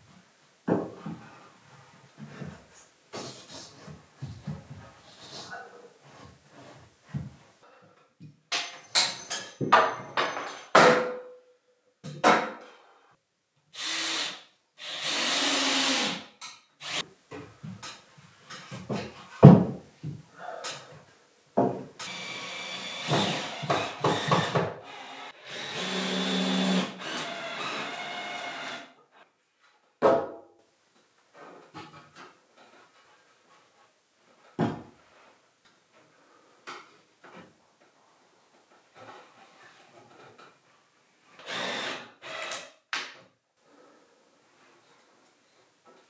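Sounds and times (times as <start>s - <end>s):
power drill running: 13.8s - 16.2s, 16.8s - 17.0s, 22.1s - 28.8s, 41.5s - 42.5s.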